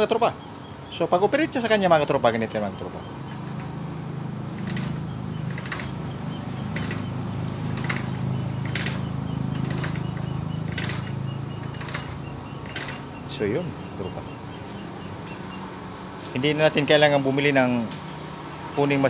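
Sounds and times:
electric motor humming: 0:01.7 - 0:16.4.

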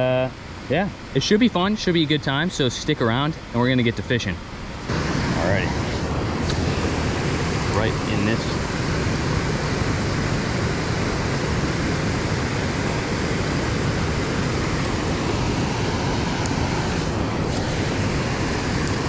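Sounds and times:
river water rushing over rocks: 0:04.8 - 0:19.0.

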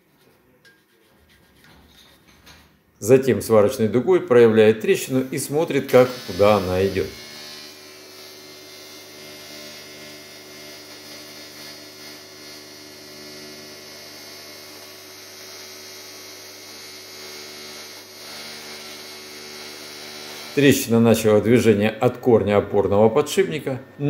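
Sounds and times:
electrical hum: 0:03.0 - 0:11.7.

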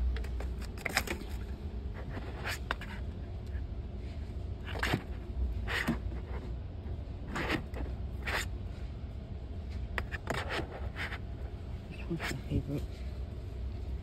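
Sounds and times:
low steady hum: 0:00.0 - 0:14.0
tumblers scraping on cardboard: 0:07.2 - 0:08.5.

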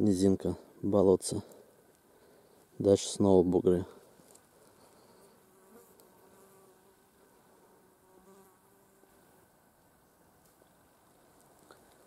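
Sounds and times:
flying insect buzzing: 0:04.7 - 0:09.2.

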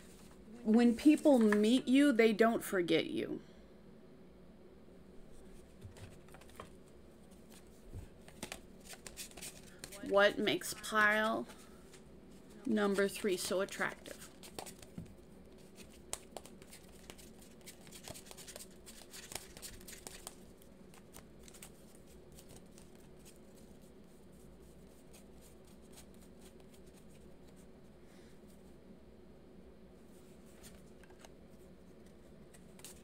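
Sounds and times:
faint steady hum: 0:00.0 - 0:33.0
cards shuffling: 0:05.9 - 0:10.1, 0:12.8 - 0:23.8, 0:24.7 - 0:27.6, 0:30.5 - 0:31.4, 0:32.0 - 0:33.0.

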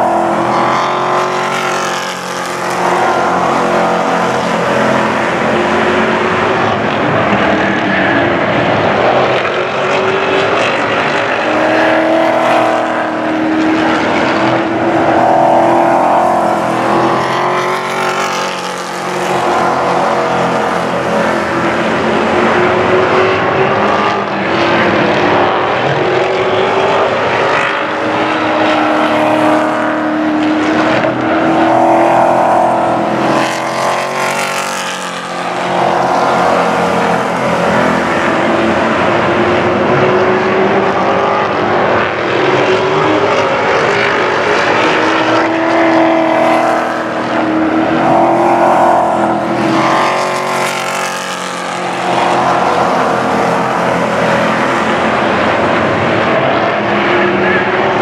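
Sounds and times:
race truck engines passing: 0:00.0 - 0:58.0.

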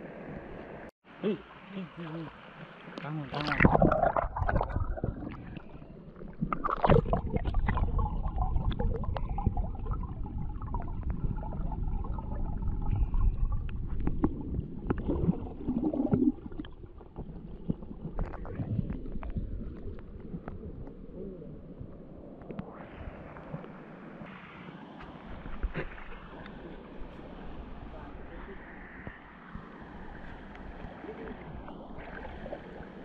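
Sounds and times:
water gurgling in stream: 0:01.5 - 0:23.7, 0:29.6 - 0:33.0
low rumble: 0:03.5 - 0:22.1.

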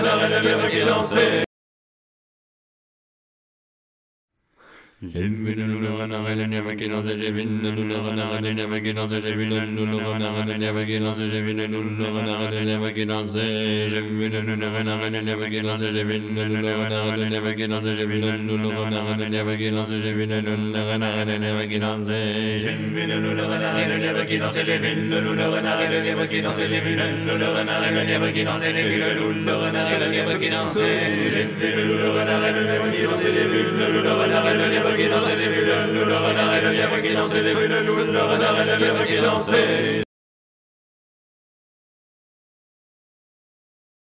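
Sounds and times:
group of voices chanting: 0:00.0 - 0:01.5, 0:22.6 - 0:40.1.

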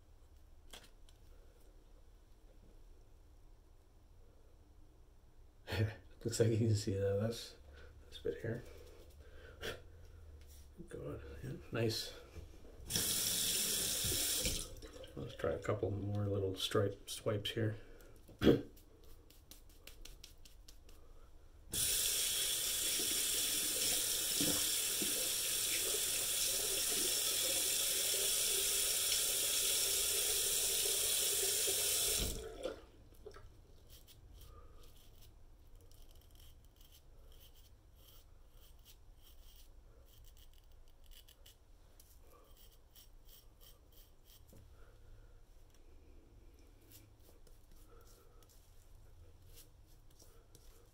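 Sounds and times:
sink tap running: 0:12.9 - 0:15.1, 0:21.7 - 0:32.8.

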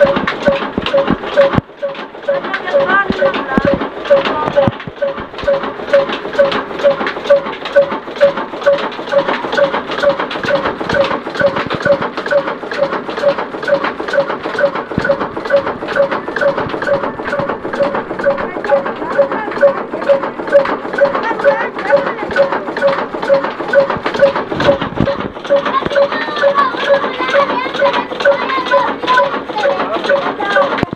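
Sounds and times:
diesel engine knocking and clanking: 0:00.0 - 0:30.9.

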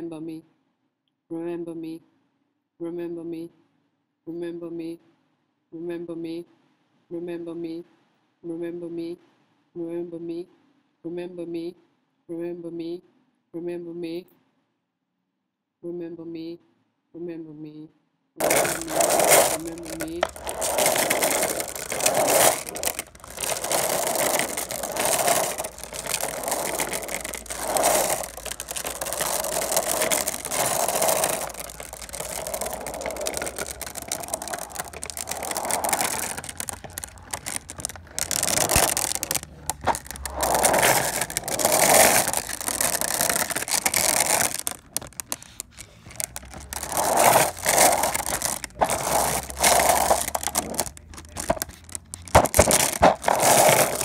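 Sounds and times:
harsh scraping crackling noise: 0:18.4 - 0:54.0.

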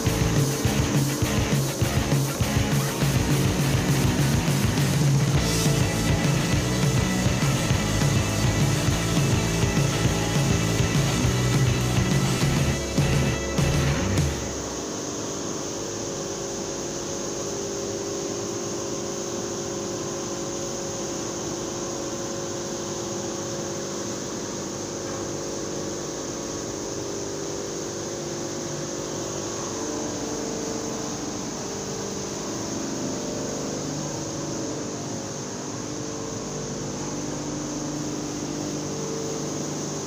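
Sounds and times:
high hiss: 0:00.0 - 0:21.7, 0:22.8 - 0:40.0
grain mill machinery drone: 0:00.0 - 0:40.0.

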